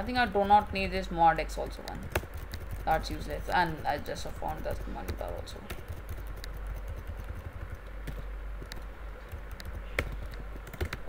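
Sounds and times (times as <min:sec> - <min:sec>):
steady low hum: 0:00.0 - 0:11.0
computer keyboard key presses: 0:01.8 - 0:03.3, 0:03.9 - 0:11.0.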